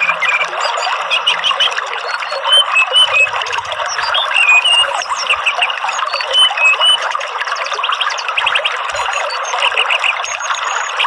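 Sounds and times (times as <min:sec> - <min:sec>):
songbirds chirping: 0:00.0 - 0:07.0
running water: 0:00.0 - 0:11.0.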